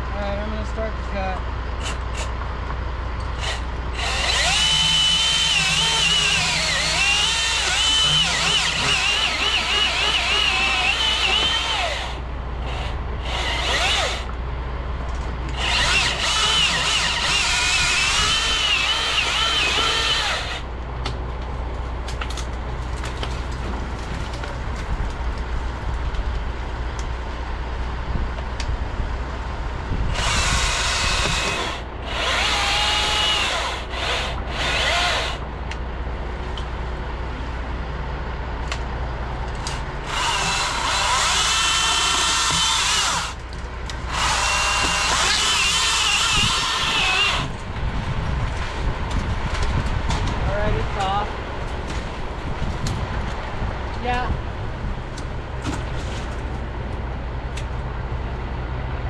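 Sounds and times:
steady low hum: 0.0s - 59.0s
electric chainsaw cutting wood: 3.4s - 14.3s, 15.5s - 20.6s, 30.1s - 35.4s, 40.0s - 43.4s, 44.1s - 47.6s.

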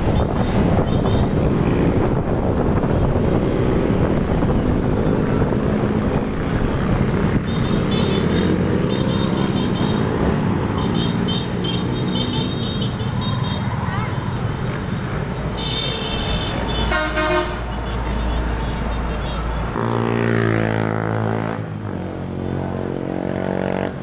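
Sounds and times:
wind buffeting the microphone: 0.0s - 7.5s
motorbike engine and road noise: 0.0s - 24.0s.

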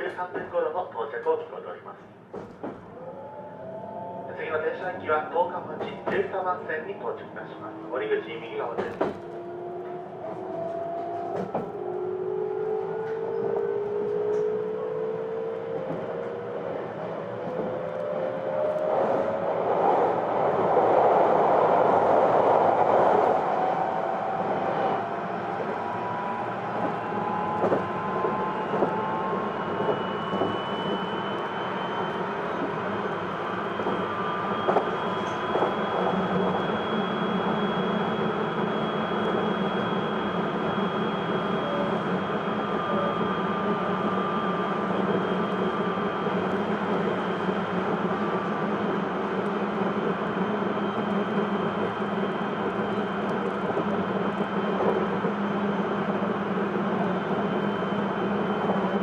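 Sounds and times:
electric train rumble and whine: 0.0s - 59.0s.

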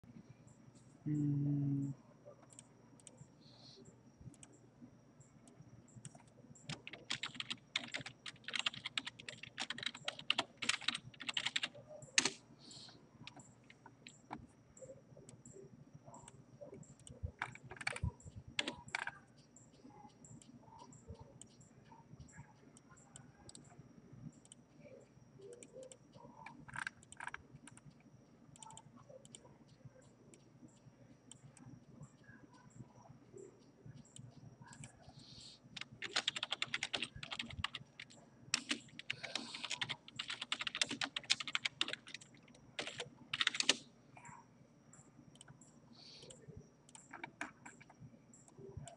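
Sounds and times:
faint high-pitched whine: 0.0s - 48.9s
typing on a keyboard: 6.0s - 12.4s, 17.0s - 19.2s, 25.5s - 28.0s, 28.6s - 30.5s, 35.7s - 43.8s, 46.2s - 48.9s
mouse clicks: 28.6s - 31.6s.

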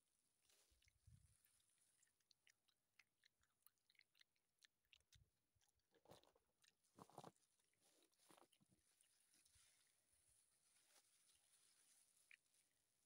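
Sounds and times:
chewing mouth clicks: 0.7s - 9.2s.

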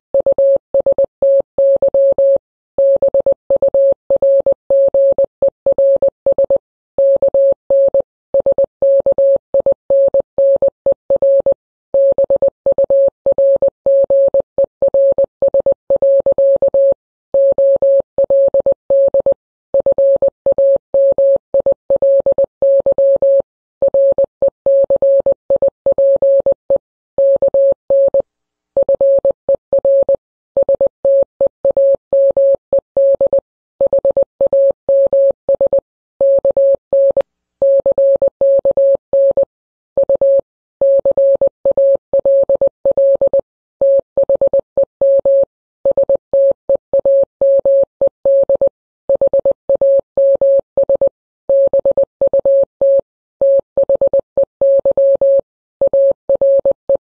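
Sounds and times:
morse code beeps: 0.2s - 28.2s, 28.8s - 57.0s.

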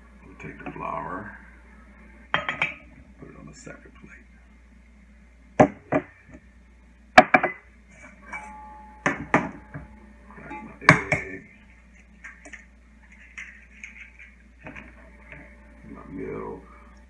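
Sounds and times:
glass dishes clinking on counter: 2.4s - 2.8s, 8.3s - 11.3s.

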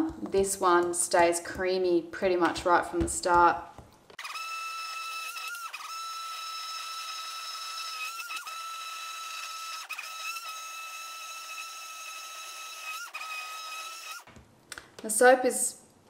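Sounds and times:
stick blender motor whine: 4.2s - 14.3s.

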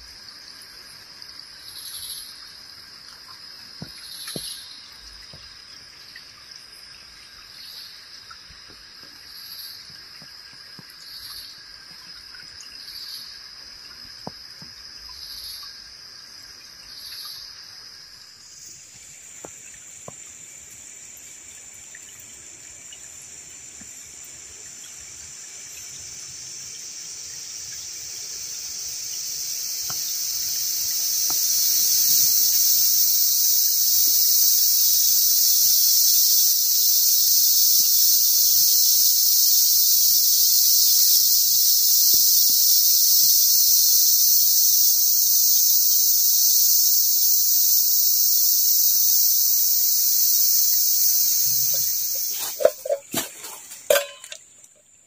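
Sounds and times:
insect high pulsing call: 0.0s - 55.0s
insect steady high buzz: 0.0s - 55.0s
stream trickling: 0.0s - 55.0s
leaf litter crackling underfoot: 52.3s - 54.0s.

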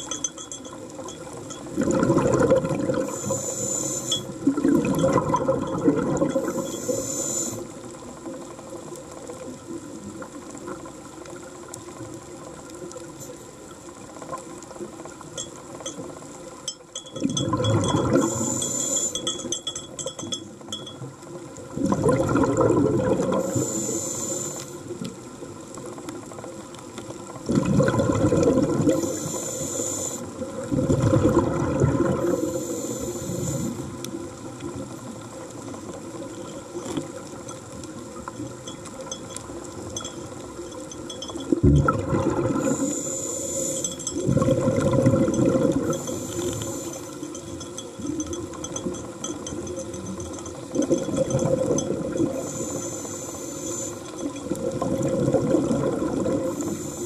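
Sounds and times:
exhale bubbling rush: 1.8s - 7.8s, 17.4s - 19.3s, 21.8s - 25.0s, 27.5s - 34.0s, 41.6s - 47.2s, 50.8s - 57.0s
regulator inhale hiss: 3.0s - 4.4s, 6.4s - 7.9s, 18.1s - 19.5s, 23.3s - 25.0s, 28.8s - 30.5s, 32.2s - 34.0s, 42.5s - 44.0s, 45.8s - 47.4s, 52.3s - 54.3s, 56.3s - 57.0s.

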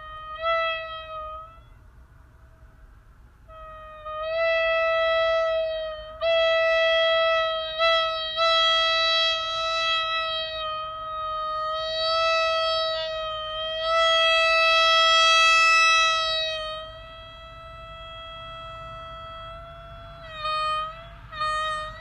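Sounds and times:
marine horn blowing: 0.0s - 2.6s, 3.4s - 22.0s.

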